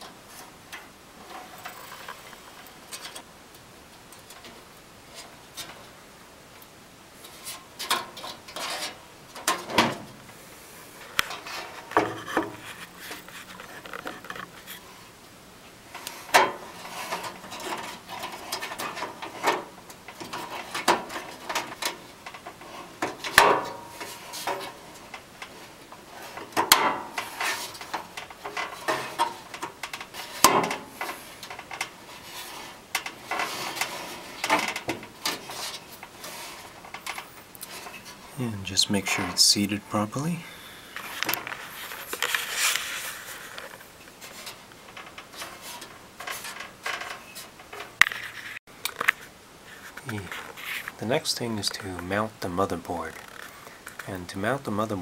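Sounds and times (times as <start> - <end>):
metal scraping rattles: 0.0 - 3.3, 15.9 - 48.6.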